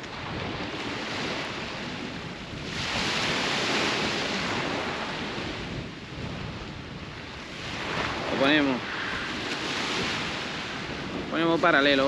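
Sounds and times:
sea waves breaking on shore: 0.0 - 12.0.

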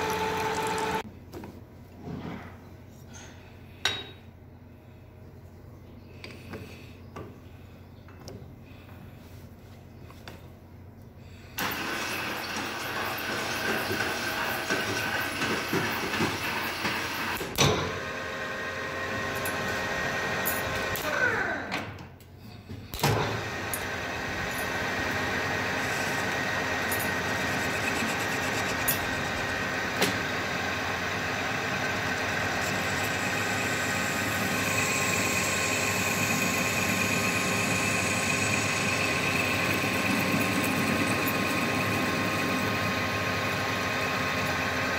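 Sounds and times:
lathe motor whine: 0.0 - 1.0, 11.6 - 21.7, 23.2 - 44.9
tool bit scraping metal: 25.8 - 29.4, 32.6 - 42.0.

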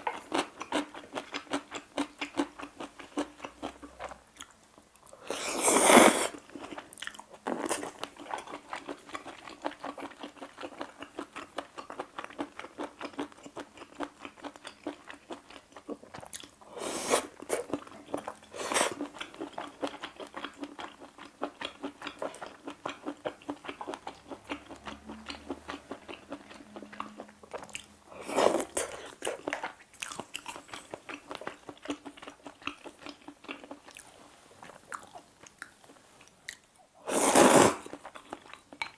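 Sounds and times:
noodle slurping: 5.2 - 6.4, 16.7 - 17.7, 37.0 - 38.0.

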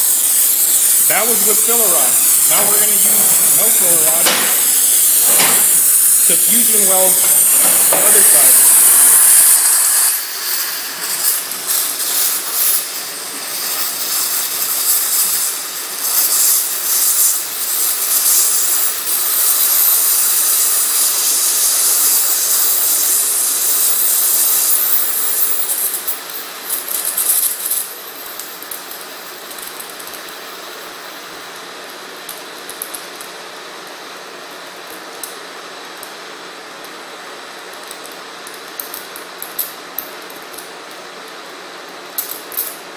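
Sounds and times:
plasma torch hissing and crackling: 0.0 - 41.2.

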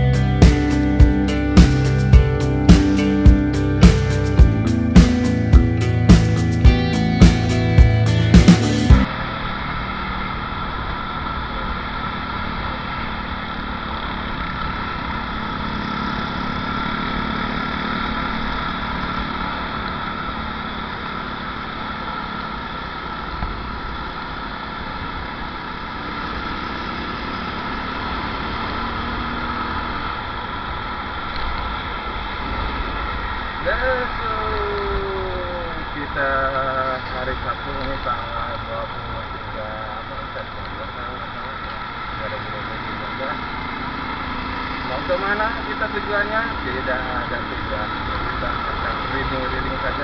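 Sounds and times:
guitar music: 0.0 - 9.1
motorcycle engine: 0.0 - 50.0.

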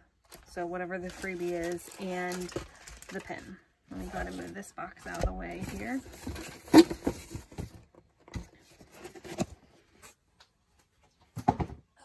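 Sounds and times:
bubble wrap packages rustling: 0.1 - 7.6.

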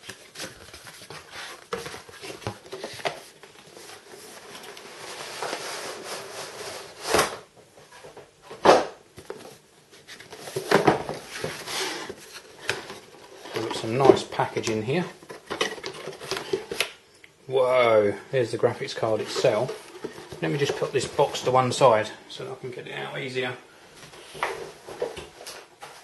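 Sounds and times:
cardboard packaging rustling: 0.0 - 7.4, 9.2 - 16.9, 18.8 - 21.8.

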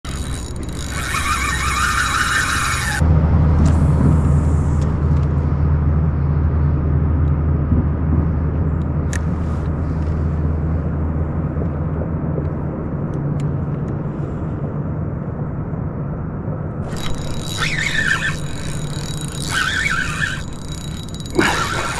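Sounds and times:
fishing reel buzzing: 0.0 - 3.0, 16.8 - 21.9
reel drag screaming: 0.0 - 3.0, 16.8 - 21.9
low rumble: 2.6 - 17.6.

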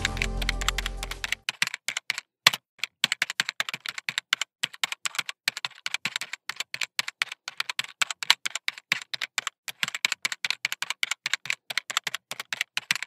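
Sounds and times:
background music: 0.0 - 1.4.

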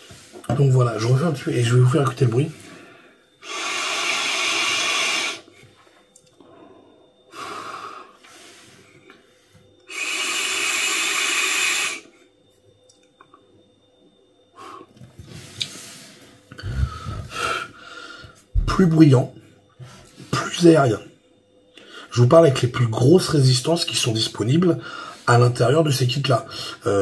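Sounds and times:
vapour breathed out: 2.6 - 5.7, 6.4 - 12.1, 14.6 - 18.5
airy hissing of vape draw: 3.4 - 5.6, 9.9 - 12.1.

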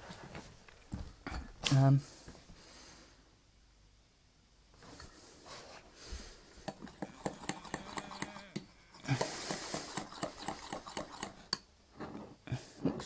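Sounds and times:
utensil beating batter in bowl: 6.6 - 11.6.

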